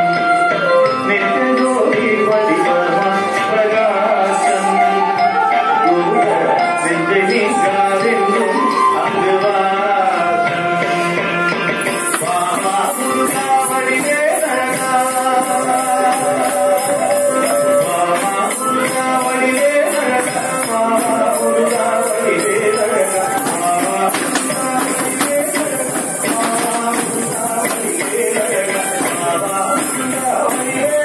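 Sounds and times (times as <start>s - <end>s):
steady percussion: 0.0s - 31.0s
high jingling shimmer: 11.9s - 31.0s.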